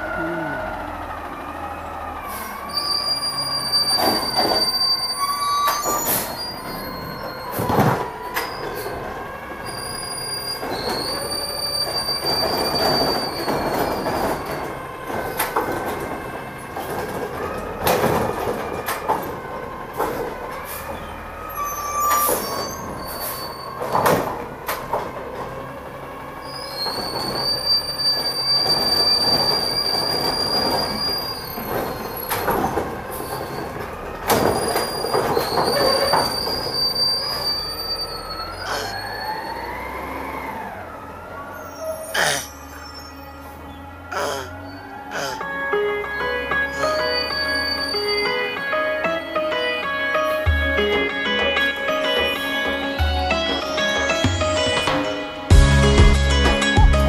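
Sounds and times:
truck engine running: 0:00.0 - 0:04.3, 0:49.8 - 0:57.0
carts banging and knocking: 0:05.6 - 0:21.1, 0:22.0 - 0:26.0, 0:26.8 - 0:39.1.

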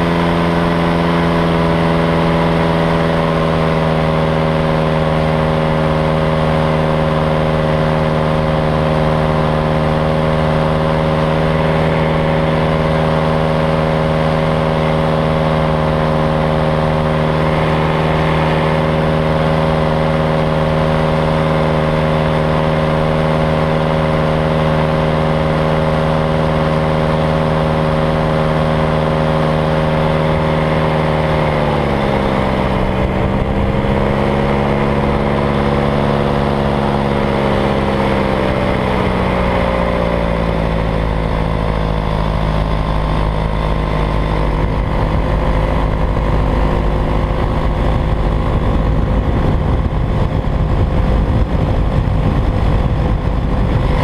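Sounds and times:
paramotor engine and propeller: 0:00.0 - 0:54.0
wind rushing over microphone: 0:00.0 - 0:54.0.

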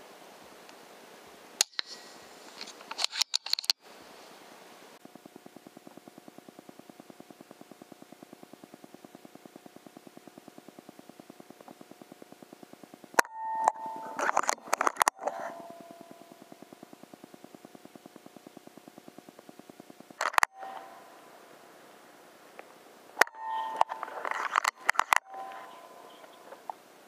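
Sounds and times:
rapid pulsing: 0:05.0 - 0:13.2
sharp clicks: 0:05.4 - 0:20.9, 0:22.6 - 0:26.4.

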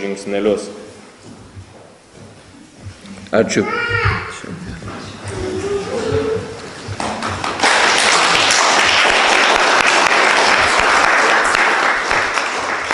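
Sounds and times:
audience applauding: 0:06.5 - 0:12.9.

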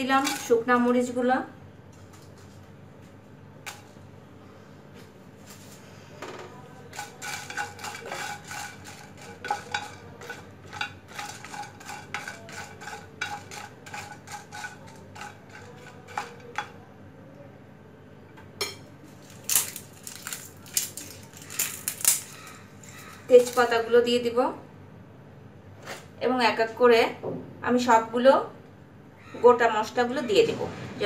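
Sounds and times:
spices rattling in pan: 0:00.0 - 0:00.9, 0:06.8 - 0:16.8, 0:19.1 - 0:23.9.

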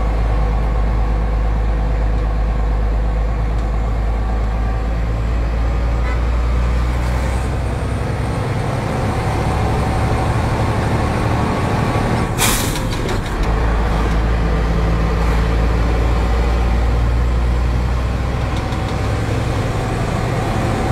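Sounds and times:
truck diesel engine rumble: 0:00.0 - 0:20.9
compressed air hiss: 0:12.4 - 0:12.8.

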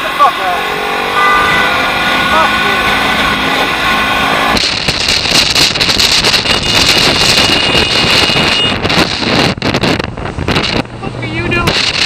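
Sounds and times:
thin high whine: 0:00.0 - 0:08.8
wind rushing over microphone: 0:00.0 - 0:12.0.

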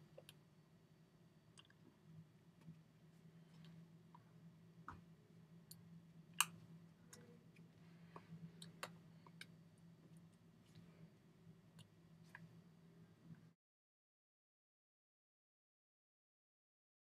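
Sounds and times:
low steady hum: 0:00.0 - 0:13.6.

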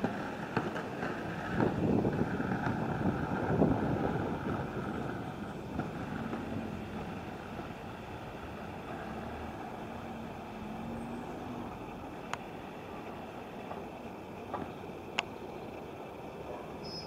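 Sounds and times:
skate wheels rolling on asphalt: 0:00.0 - 0:17.0
street noise: 0:00.0 - 0:17.0
wind on microphone: 0:01.3 - 0:08.9.

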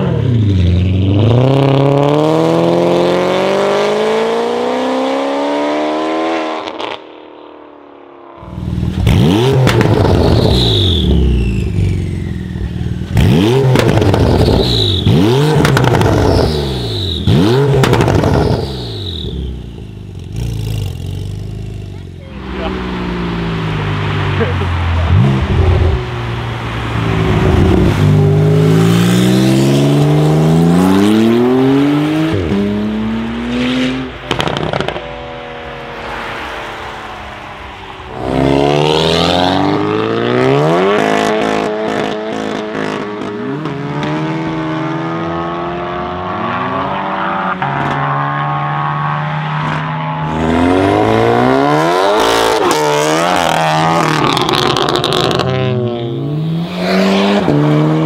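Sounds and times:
turbocharged car revving: 0:00.0 - 0:07.1, 0:08.4 - 0:58.0
exhaust pops: 0:17.7 - 0:18.7, 0:34.3 - 0:35.1.

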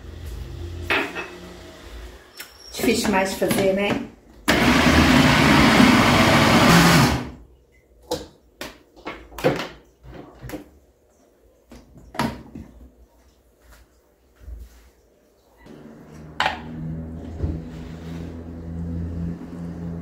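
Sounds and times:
blender running: 0:04.5 - 0:07.4.

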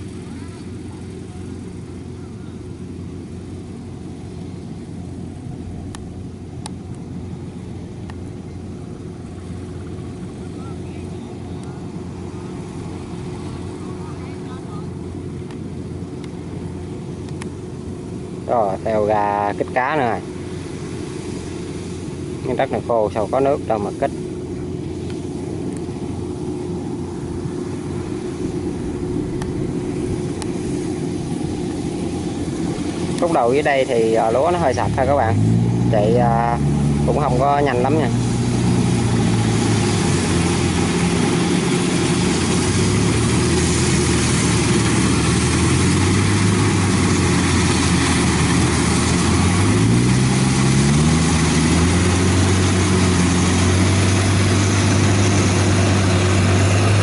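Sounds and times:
combine harvester running: 0:00.0 - 0:57.0
faint sharp clicks: 0:08.0 - 0:08.3, 0:17.2 - 0:17.5.

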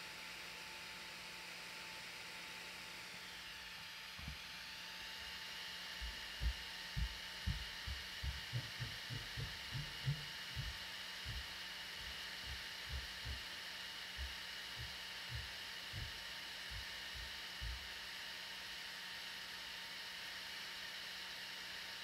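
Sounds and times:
cooling fan whirring: 0:00.0 - 0:22.0
low dull thumps: 0:06.0 - 0:13.5, 0:14.2 - 0:17.9.

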